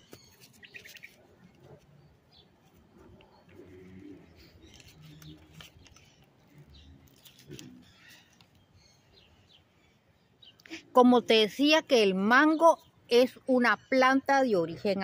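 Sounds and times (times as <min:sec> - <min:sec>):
small birds chirping: 0:00.0 - 0:15.0
dove cooing: 0:02.9 - 0:05.6.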